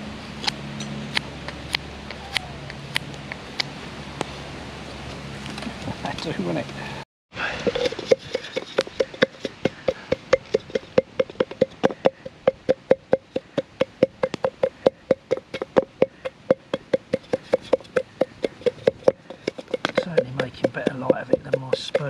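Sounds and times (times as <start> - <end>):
stick pounding in metal pot: 7.7 - 22.0.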